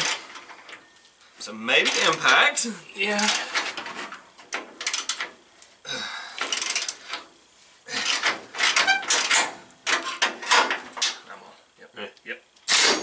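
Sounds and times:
metal tools clinking and rattling: 0:01.8 - 0:02.5, 0:03.2 - 0:04.2, 0:08.0 - 0:11.2.

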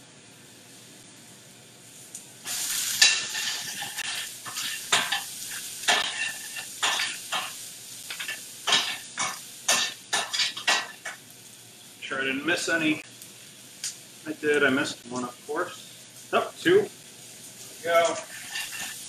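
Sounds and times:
vegetables sizzling in hot oil: 0:00.0 - 0:19.0
utensil clinking and scraping pan: 0:03.0 - 0:11.2, 0:18.1 - 0:19.0.

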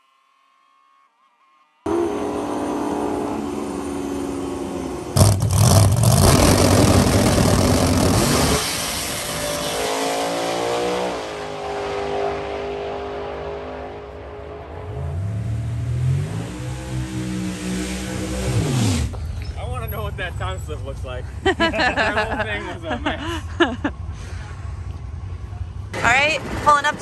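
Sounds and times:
drag racing car engine: 0:01.9 - 0:21.7.

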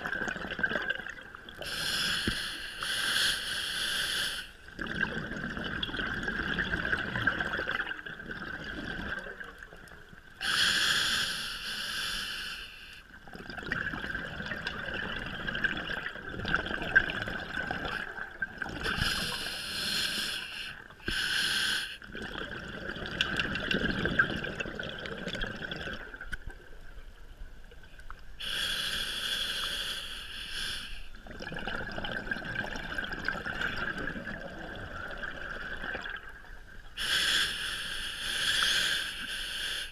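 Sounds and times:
underwater bubbling: 0:00.0 - 0:39.8
regulator breathing hiss: 0:01.6 - 0:04.6, 0:10.4 - 0:13.0, 0:19.0 - 0:22.0, 0:28.4 - 0:31.2, 0:37.0 - 0:39.9.

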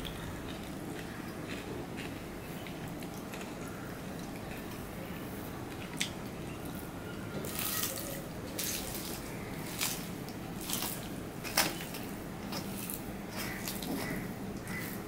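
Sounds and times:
hand mixing rice on steel plate: 0:08.6 - 0:15.0.

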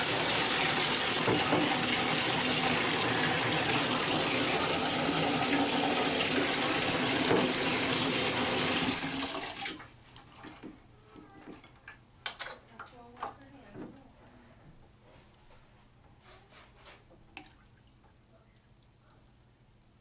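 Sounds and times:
faucet running into plastic bucket: 0:00.0 - 0:10.5.

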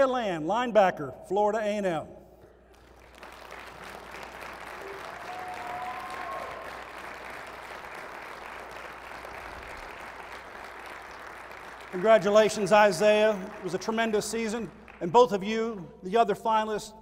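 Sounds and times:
audience applause: 0:02.8 - 0:14.2.

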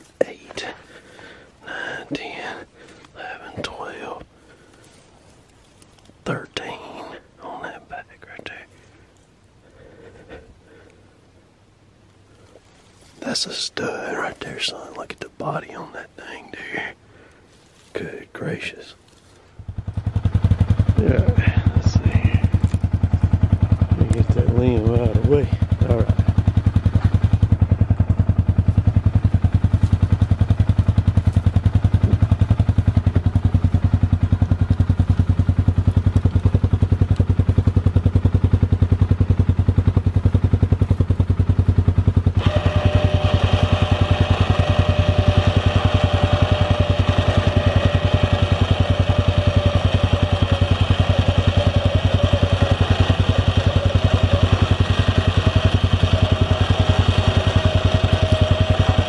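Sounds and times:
engine idling: 0:00.0 - 0:14.9, 0:16.6 - 0:59.0.

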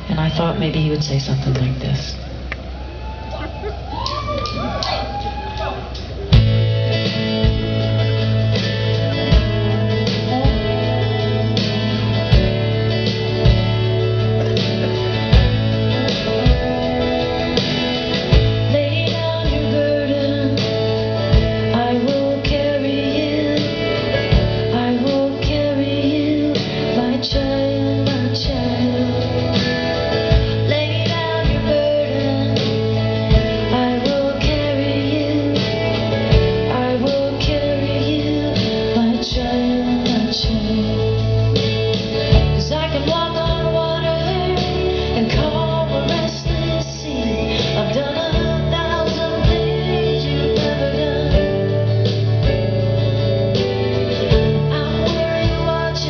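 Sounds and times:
keyboards: 0:00.0 - 0:56.0
steady drum beat: 0:05.7 - 0:56.0
strummed acoustic guitar: 0:06.3 - 0:56.0
woman singing: 0:09.6 - 0:12.7, 0:18.3 - 0:41.7, 0:42.3 - 0:56.0.

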